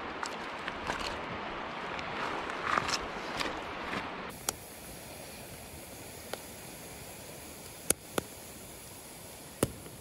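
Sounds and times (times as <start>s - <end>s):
campfire crackling pops: 4.3s - 10.0s
fire hissing: 4.3s - 10.0s.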